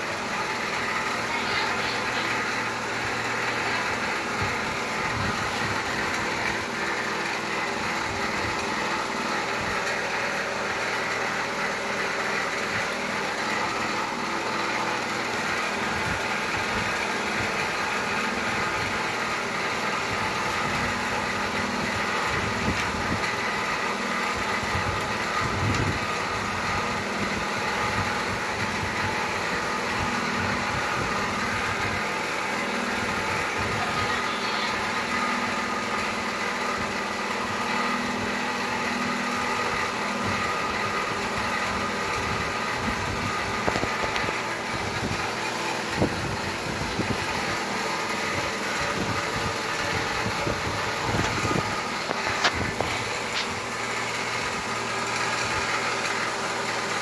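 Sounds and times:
heat gun whirring: 0.0s - 57.0s.

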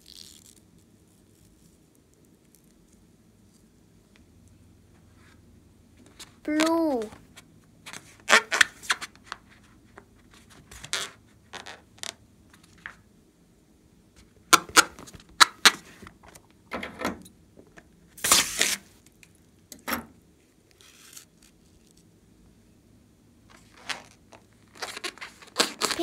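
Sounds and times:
rubber balloon squeezed by hands: 24.7s - 26.0s.

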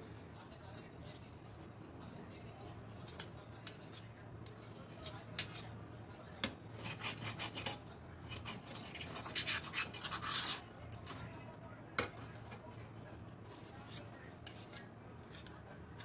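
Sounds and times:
faint low hum: 0.0s - 16.0s
spoon scraping a pan: 8.8s - 11.1s.

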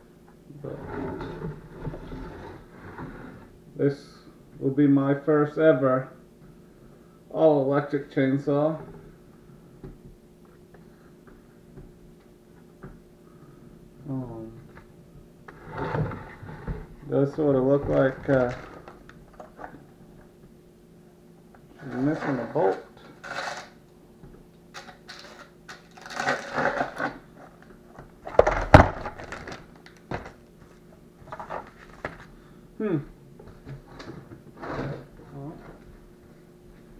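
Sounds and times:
man murmuring: 32.8s - 33.2s.

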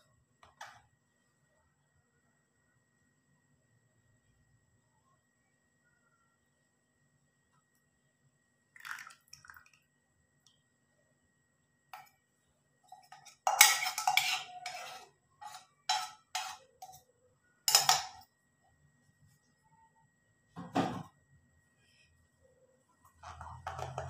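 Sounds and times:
steel tumbler set on counter: 11.9s - 19.9s, 23.0s - 24.0s
metal utensils clinking: 12.9s - 17.0s, 17.7s - 18.2s.

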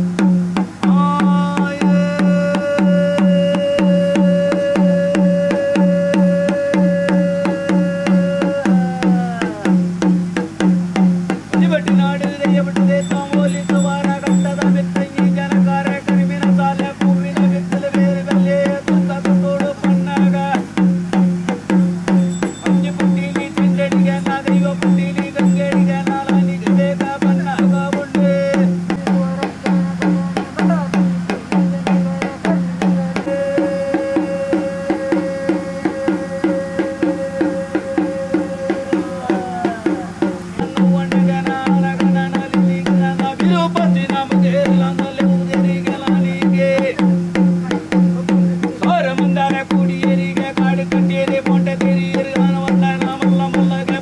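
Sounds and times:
drums beating: 0.0s - 54.0s
wind instrument melody: 1.3s - 9.8s, 12.8s - 15.0s, 21.7s - 26.8s, 28.4s - 42.1s.

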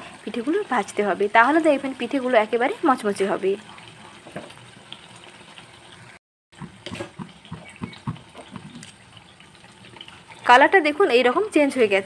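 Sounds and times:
fritters sizzling in hot oil: 0.0s - 12.0s
oil crackling and popping: 3.5s - 10.8s.

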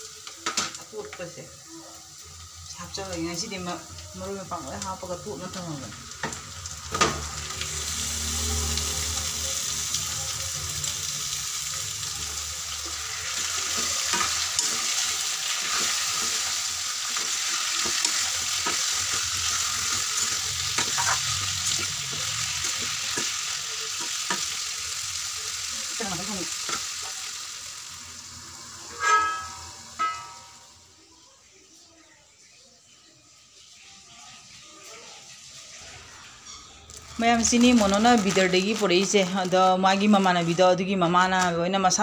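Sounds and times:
chicken sizzling in hot oil: 0.0s - 42.0s
spatula scraping a pan: 12.3s - 24.6s, 28.8s - 30.5s
steel lid clanking on pan: 28.9s - 30.7s.

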